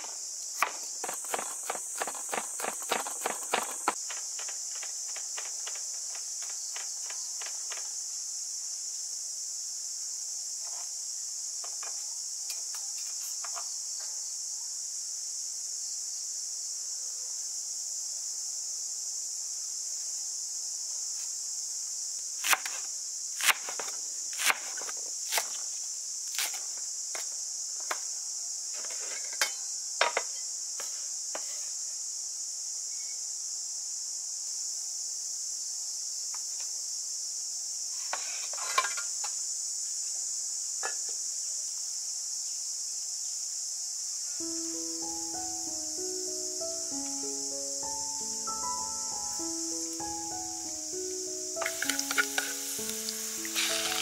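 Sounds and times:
high insect drone: 0.0 - 54.0
cleaver chopping on wooden board: 0.6 - 5.8.

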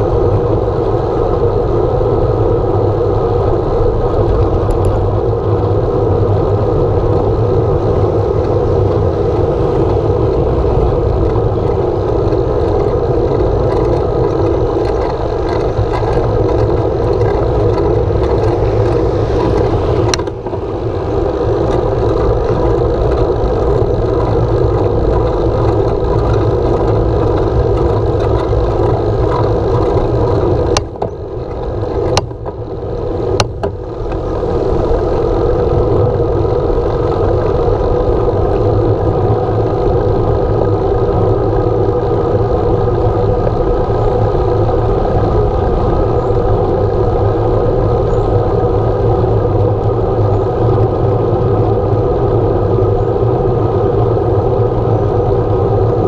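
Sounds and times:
wind buffeting microphone: 0.0 - 56.0
tyre rumble on asphalt: 4.4 - 47.7.

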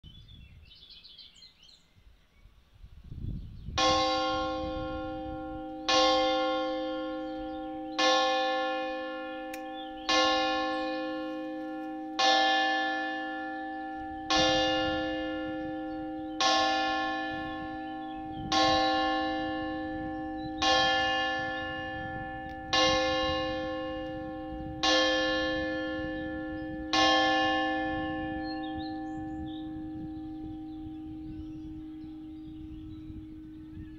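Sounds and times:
church bell tolling: 3.8 - 33.9.

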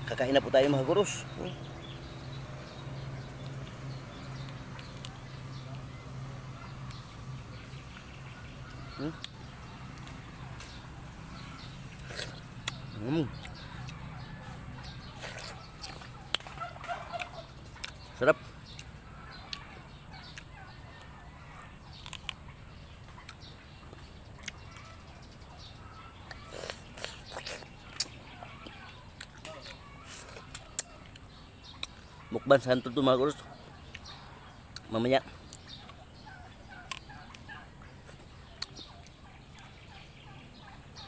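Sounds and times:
chewing and handling fruit: 0.0 - 41.0
distant poultry calls: 0.0 - 41.0
faint fowl calls: 11.4 - 22.3.

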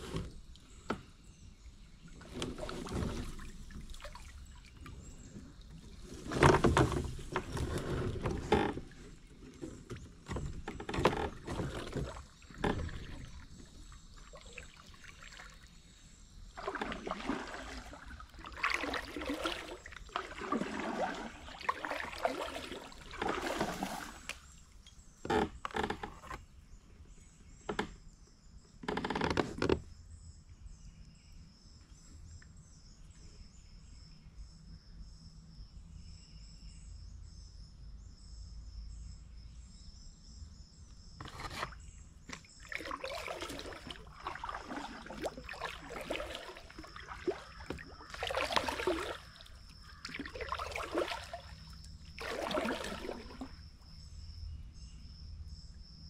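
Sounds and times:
insects droning: 0.0 - 56.0
paddle splashing in water: 2.1 - 26.4, 41.2 - 53.7.

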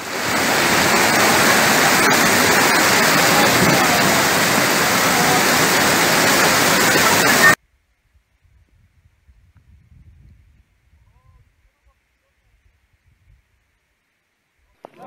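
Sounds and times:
floodwater rushing: 0.0 - 7.6
heavy rain falling: 0.0 - 7.6.

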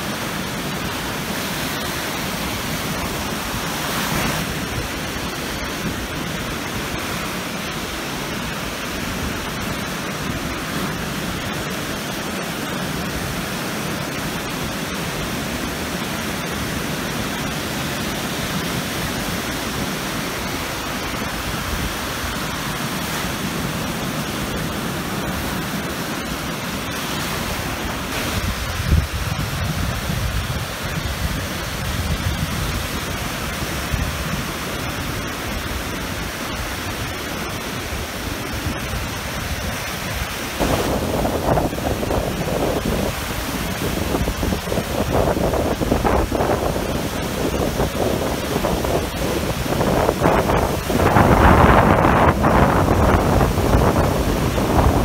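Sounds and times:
waves breaking on shore: 0.0 - 55.0.

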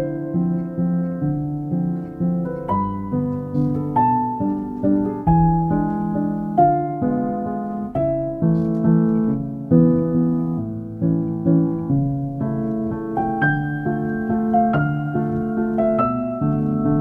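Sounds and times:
gentle slow piano melody: 0.0 - 17.0.

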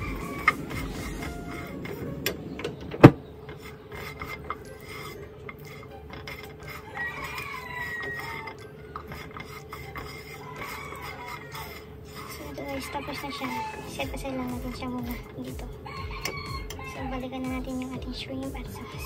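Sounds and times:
metal spoon scraping a frying pan: 0.0 - 2.4, 3.4 - 18.0.

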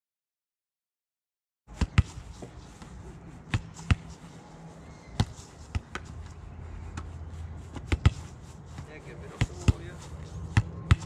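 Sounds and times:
football thudding against wall: 5.2 - 6.1, 7.7 - 8.3, 10.5 - 11.0.

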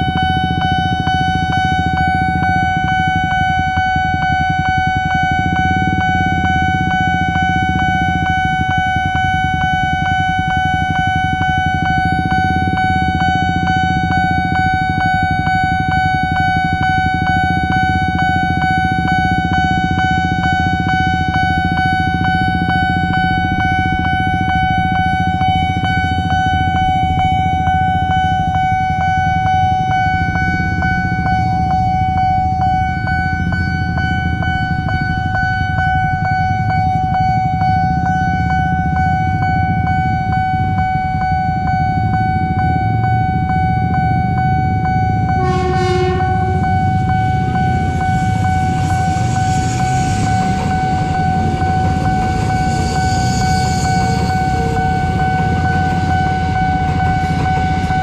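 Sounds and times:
level crossing alarm ringing: 0.0 - 58.0.

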